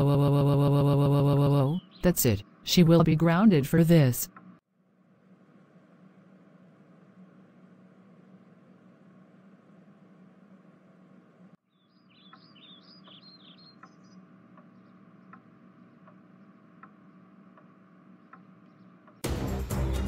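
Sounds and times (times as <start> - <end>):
high bird chirps: 1.7 - 2.2, 11.7 - 16.0
soft ticking: 12.3 - 19.2
loud background music: 19.2 - 20.0.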